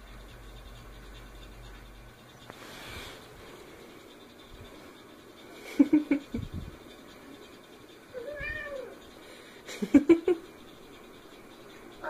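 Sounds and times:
cat meowing: 8.2 - 9.0.

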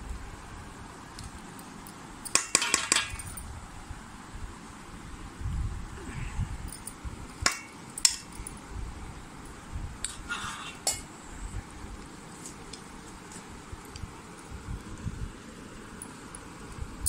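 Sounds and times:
steel plates clinking: 1.8 - 3.4.

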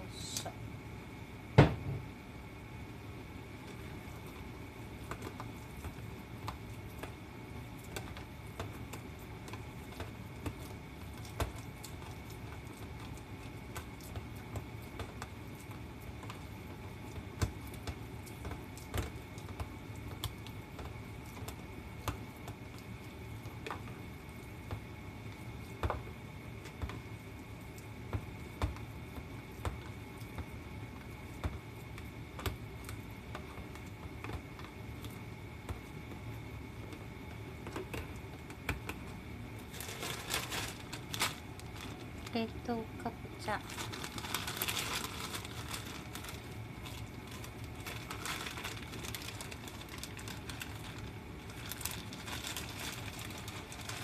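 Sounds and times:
steady background hum: 0.0 - 54.0
hands squishing minced meat: 43.4 - 54.0.

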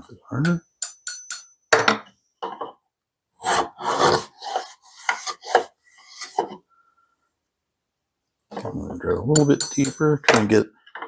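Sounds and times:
hand plane scraping wood: 3.4 - 6.6.

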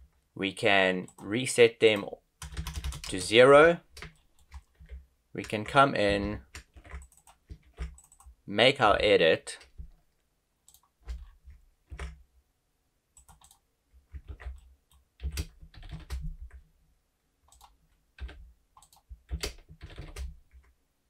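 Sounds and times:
computer keyboard keystrokes: 2.0 - 3.2, 5.6 - 8.3, 10.7 - 12.2, 13.2 - 16.6, 17.5 - 20.7.

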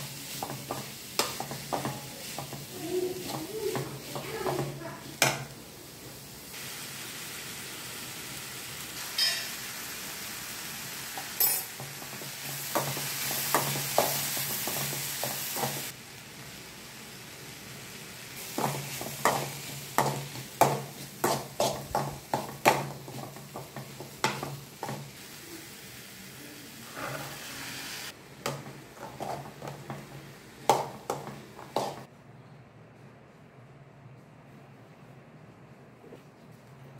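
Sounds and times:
vegetables sizzling in a pan: 0.0 - 32.1
spoon scraping a pan: 18.4 - 25.0, 26.8 - 27.7, 29.0 - 30.0.

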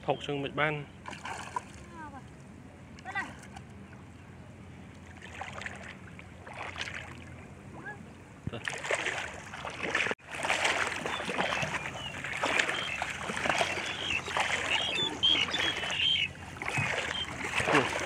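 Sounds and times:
water splashing and sloshing: 0.9 - 4.1, 4.8 - 18.0.

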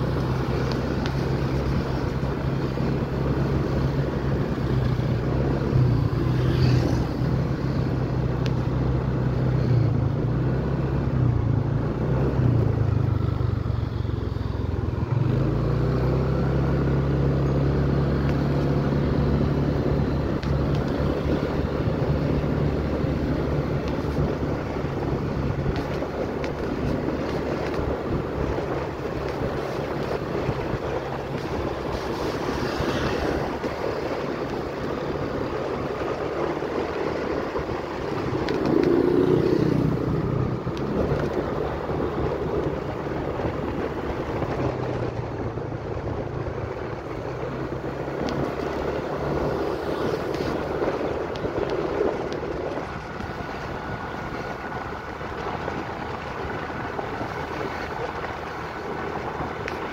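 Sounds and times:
road noise: 0.0 - 59.9
wind noise on microphone: 16.2 - 59.9.

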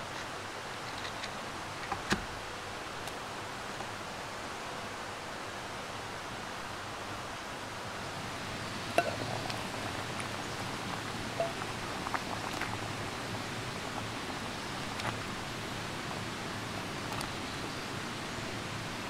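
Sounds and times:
water boiling in a pot: 3.2 - 19.0
gas stove hiss: 7.9 - 19.0.

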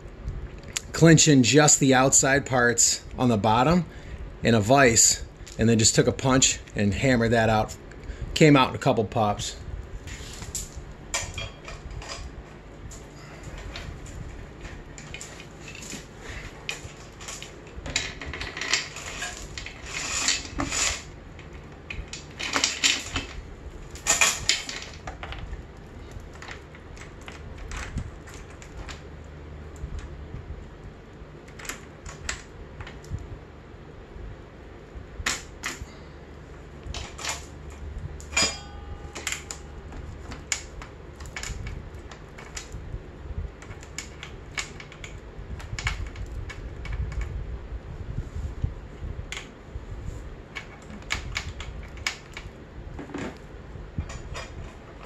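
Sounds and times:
metal chain links clinking: 16.7 - 21.1
sharp metallic clank: 38.2 - 39.9.

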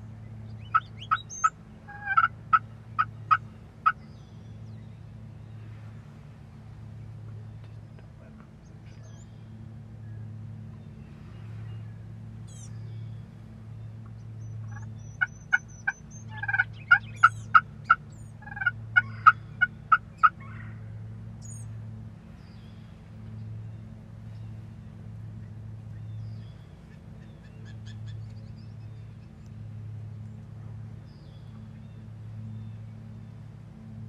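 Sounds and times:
steady low hum: 0.0 - 34.0
wild turkey yelping: 0.6 - 4.0, 14.6 - 20.7.

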